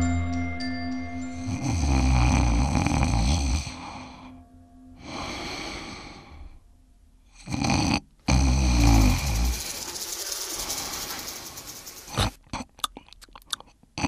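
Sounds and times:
person snoring: 0:01.4 - 0:04.3, 0:05.0 - 0:06.6, 0:07.4 - 0:12.4
snort: 0:07.4 - 0:09.9, 0:12.1 - 0:12.7.

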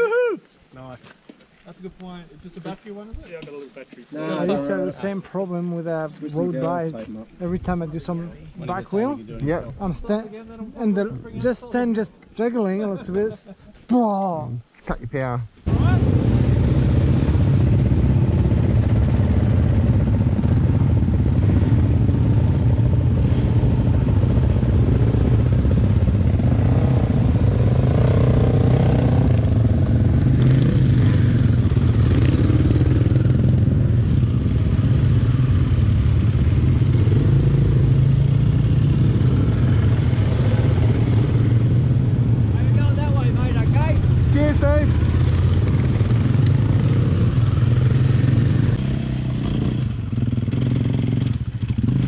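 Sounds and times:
dirt bike engines running: 0:15.7 - 0:52.0
motorcycles riding past: 0:15.7 - 0:52.0.

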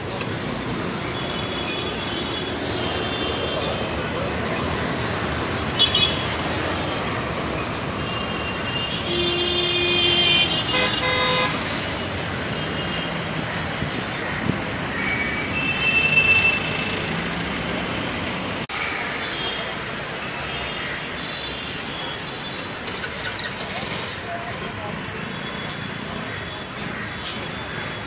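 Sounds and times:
street traffic: 0:00.0 - 0:28.0
vehicle horns honking: 0:05.8 - 0:06.4, 0:08.0 - 0:11.8, 0:15.6 - 0:17.1.

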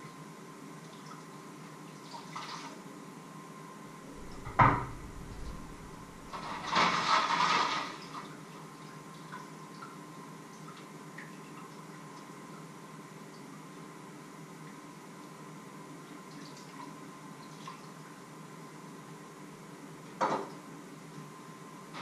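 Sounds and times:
cookware knock: 0:04.2 - 0:05.9.

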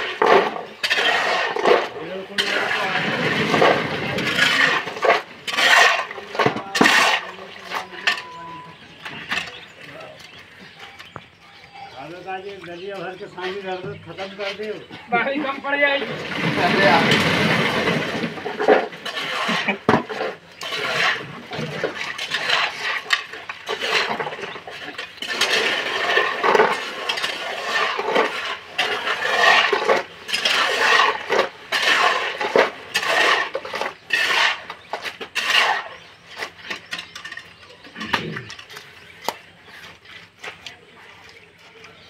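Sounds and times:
shovels scraping wet concrete: 0:00.0 - 0:11.2, 0:12.0 - 0:42.0.

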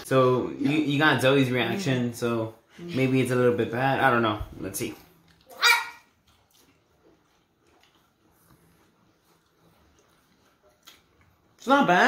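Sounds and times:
faint chewing: 0:04.8 - 0:11.9.

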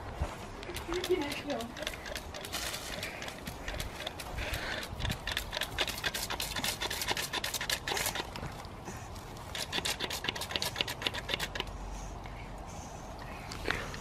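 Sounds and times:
puppy scratching in leafy shrub: 0:00.7 - 0:08.4.

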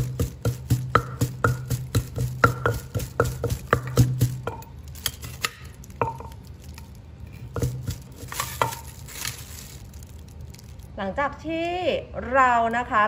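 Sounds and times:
pestle pounding in a clay mortar: 0:00.0 - 0:09.3
metal spoon scraping a mortar: 0:07.3 - 0:09.0.

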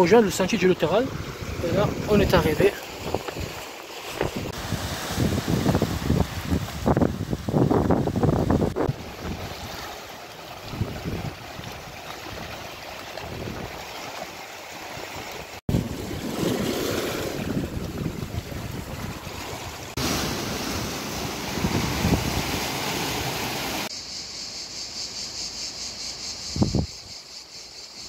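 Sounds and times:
wind buffeting microphone: 0:01.0 - 0:09.8, 0:10.6 - 0:13.8, 0:15.7 - 0:19.9, 0:21.4 - 0:22.7, 0:26.5 - 0:27.2
small waves washing over rocks: 0:08.9 - 0:23.9
high steady insect buzz: 0:22.9 - 0:28.0.

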